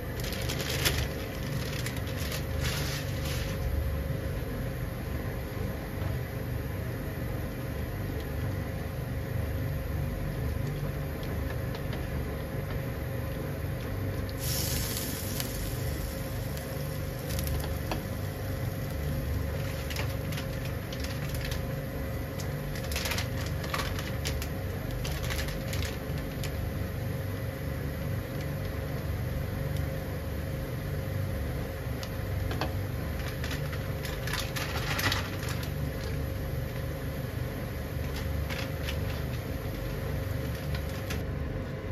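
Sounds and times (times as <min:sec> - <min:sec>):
water boiling in a pan: 0:14.3 - 0:26.8.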